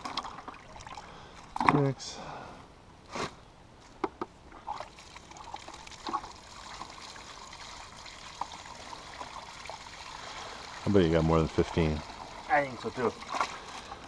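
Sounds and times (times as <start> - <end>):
water trickling: 0.0 - 1.6, 4.6 - 14.0
water splashing in plastic bucket: 0.0 - 1.9, 4.6 - 14.0.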